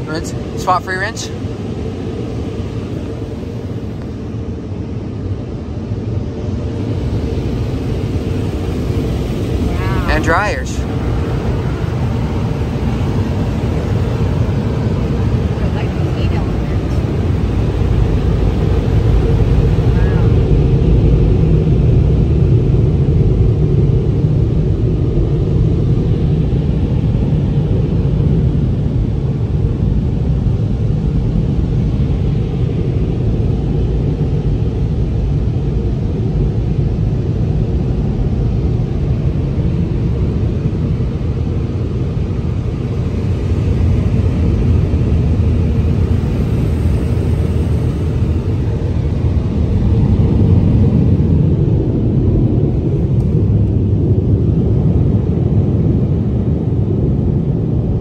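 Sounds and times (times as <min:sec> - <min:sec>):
dryer blowers roaring: 0:00.0 - 0:25.8, 0:39.0 - 0:54.9.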